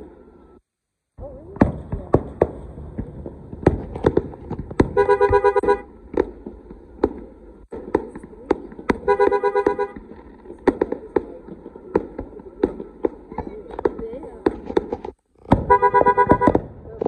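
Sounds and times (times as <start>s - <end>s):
fireworks bursting: 0.0s - 17.0s
two-tone car horn honking: 5.0s - 5.9s, 9.1s - 10.0s, 15.6s - 16.6s.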